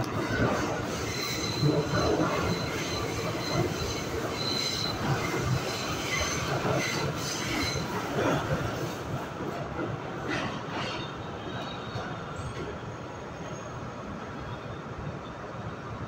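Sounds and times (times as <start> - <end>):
train wheels rumbling on rails: 0.0 - 14.4
high wheel squeal: 0.6 - 8.1.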